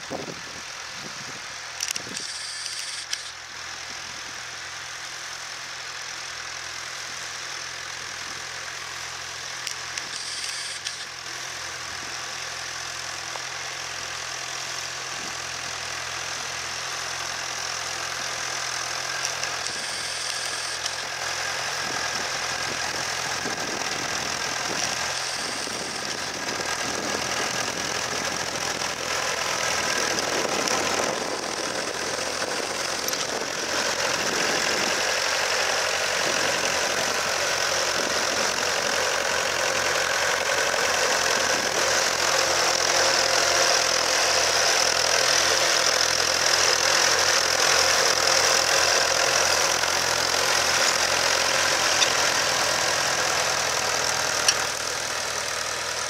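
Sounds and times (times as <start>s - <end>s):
tractor engine under load: 0.0s - 56.0s.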